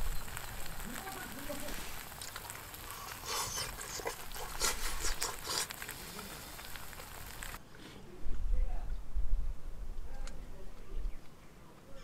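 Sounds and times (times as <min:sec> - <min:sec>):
food sizzling in a pan: 0:00.0 - 0:07.6
crackles and light clicks: 0:00.0 - 0:08.4, 0:10.0 - 0:11.9.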